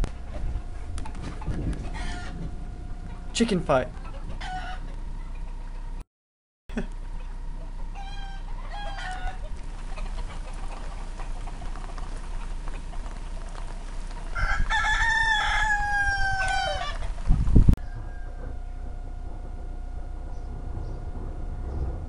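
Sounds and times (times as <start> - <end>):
cockerel crowing: 4.0 - 5.0, 7.9 - 9.5, 14.3 - 17.2
cockerel clucking: 7.2 - 14.2.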